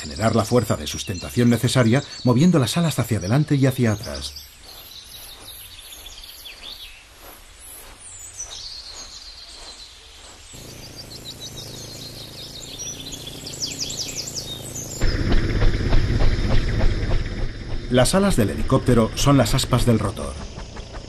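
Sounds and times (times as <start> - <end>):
small birds chirping: 0.0 - 21.0
background hiss: 1.7 - 15.0.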